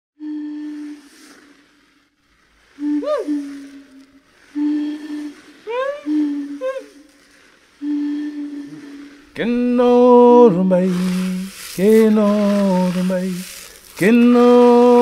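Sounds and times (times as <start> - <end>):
person humming: 0.2 - 1.2, 2.8 - 7.1, 7.8 - 15.0
person singing held note: 2.8 - 7.2, 7.8 - 15.0.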